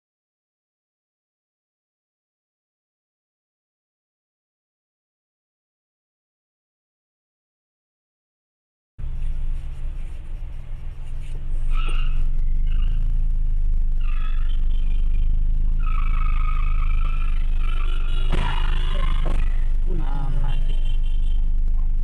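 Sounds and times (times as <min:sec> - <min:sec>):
car engine and road rumble: 0:09.0 - 0:22.0
high whining tone: 0:09.0 - 0:22.0.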